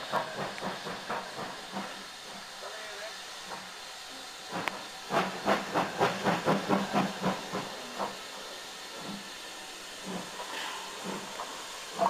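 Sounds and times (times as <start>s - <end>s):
steam hissing: 0.0s - 12.0s
locomotive exhaust chuffs: 4.5s - 12.0s.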